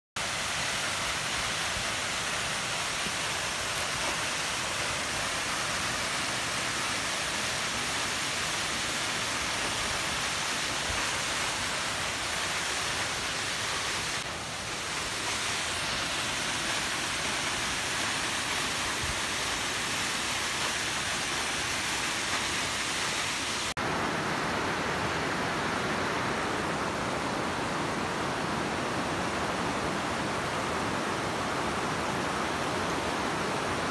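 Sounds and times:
waterfall rushing over rock: 0:00.2 - 0:33.9.

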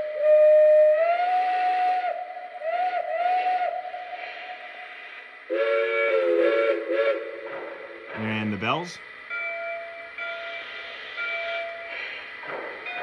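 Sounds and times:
model train whistle: 0:00.0 - 0:07.7, 0:09.3 - 0:12.0.

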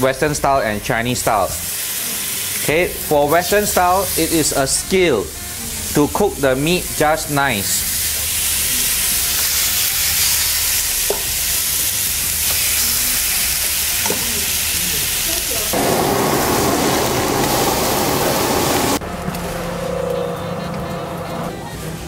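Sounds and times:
meat sizzling in a pan: 0:01.4 - 0:18.8.

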